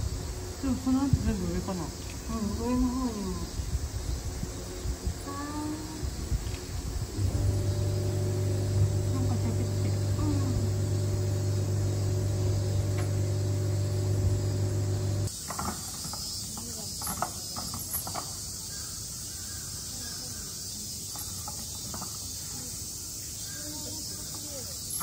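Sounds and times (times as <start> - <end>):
loud mechanical hum: 0.0 - 15.3
shrill drone of insects: 0.0 - 25.0.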